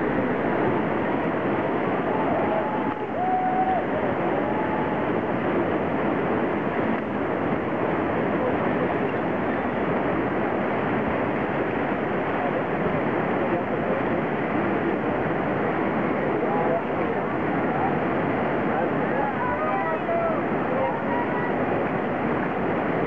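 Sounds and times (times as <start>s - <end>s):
whitewater rapids rushing: 0.0s - 23.0s.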